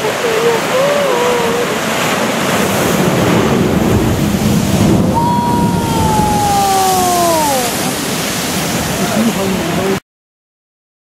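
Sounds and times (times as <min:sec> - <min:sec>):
surf surging through blowhole: 0:00.0 - 0:10.0
wind buffeting microphone: 0:00.0 - 0:10.0
person's long exclamation: 0:05.2 - 0:08.0.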